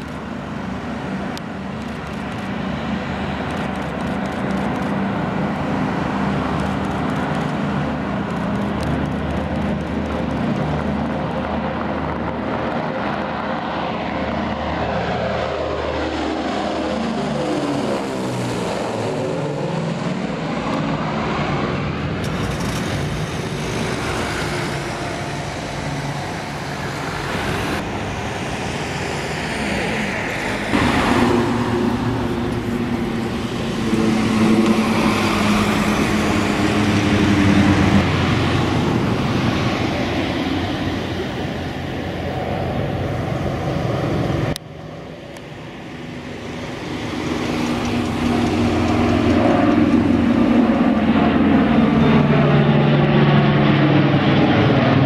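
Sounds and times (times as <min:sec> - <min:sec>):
propeller airliner engines droning: 0:00.0 - 0:55.0.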